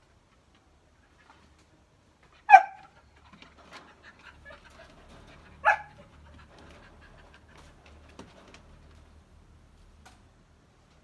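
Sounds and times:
dog bark: 2.5s - 2.9s, 5.6s - 6.0s.

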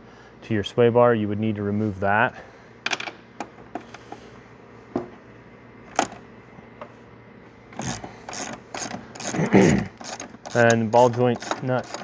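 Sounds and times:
hand tools clicking on metal: 7.8s - 12.0s.

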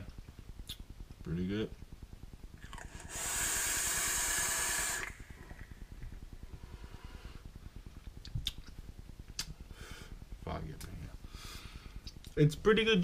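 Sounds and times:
vape hiss of air and vapour: 2.6s - 5.7s.

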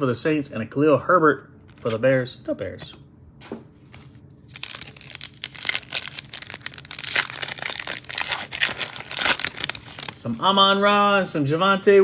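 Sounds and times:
foil wrapper crinkling and tearing: 4.5s - 10.4s.

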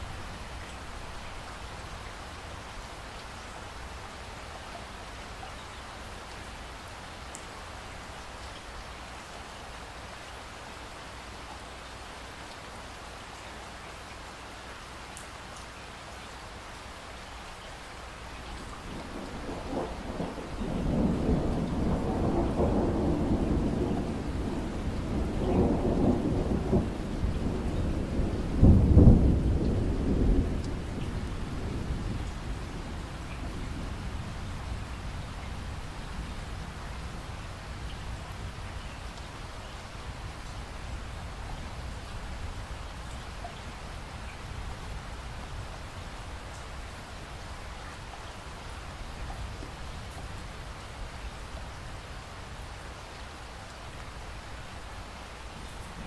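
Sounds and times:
steady rain falling: 0.0s - 56.0s
thunder rumbling: 18.8s - 37.4s.

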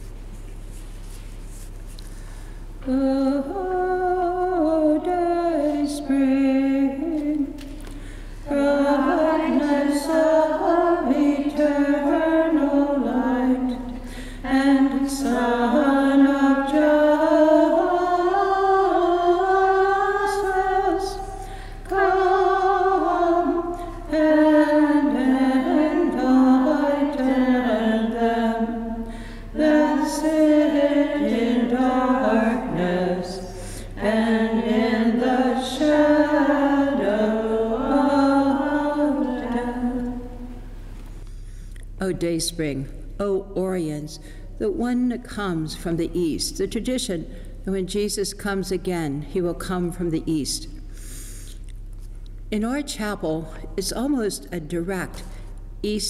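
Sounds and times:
woman singing unaccompanied: 2.8s - 7.6s, 8.5s - 40.3s.

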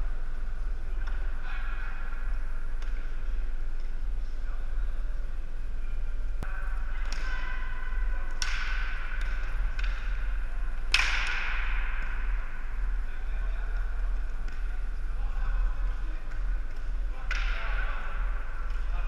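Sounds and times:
steady low hum: 0.0s - 19.0s
hockey sticks clacking: 0.9s - 2.2s, 2.8s - 4.0s, 6.4s - 19.0s.

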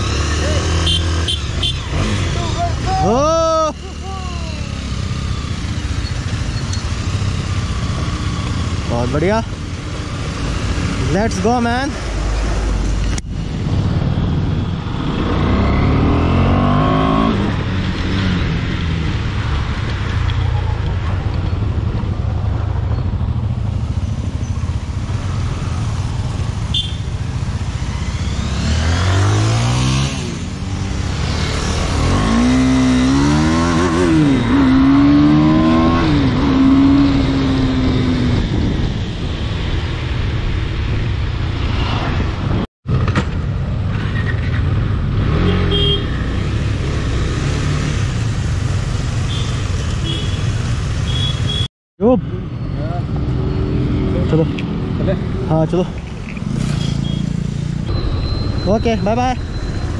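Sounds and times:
wind and road noise: 0.0s - 59.9s
motorcycle engine accelerating: 13.8s - 18.7s, 27.3s - 39.1s.

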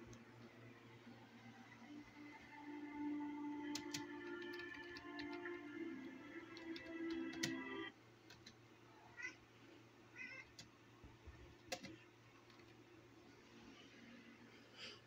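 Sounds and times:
music: 0.0s - 7.9s, 12.6s - 15.0s.

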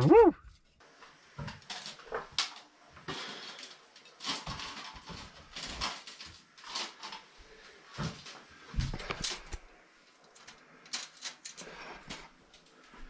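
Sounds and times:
wire trap rattling and scraping: 3.4s - 7.3s.

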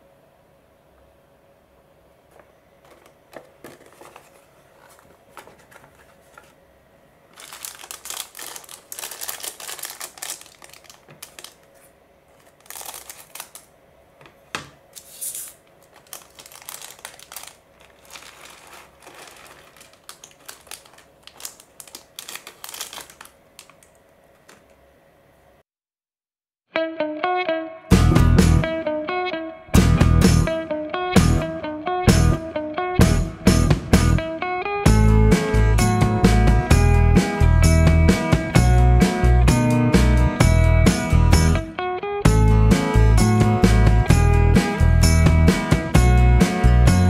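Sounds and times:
soft taps and rustles: 2.3s - 6.6s
plastic bag crinkling: 2.8s - 6.6s, 7.3s - 13.7s, 15.0s - 24.8s
plastic pieces clicking: 15.3s - 24.7s.

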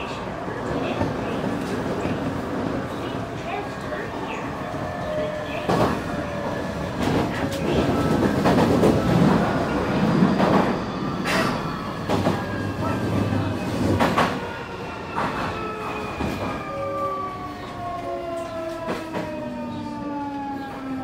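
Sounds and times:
train running rumble: 0.0s - 14.5s.

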